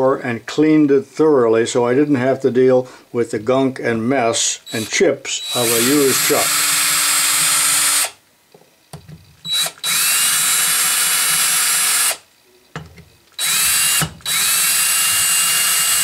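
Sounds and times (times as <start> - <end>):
cordless drill whining: 4.7 - 8.2, 9.4 - 12.2, 13.4 - 16.0.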